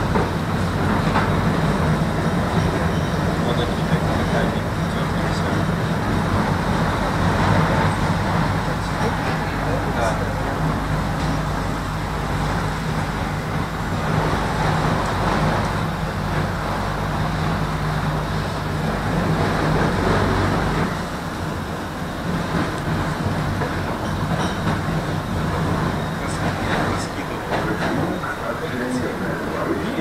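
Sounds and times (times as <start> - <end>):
wheels rumbling on rail: 0.0 - 30.0.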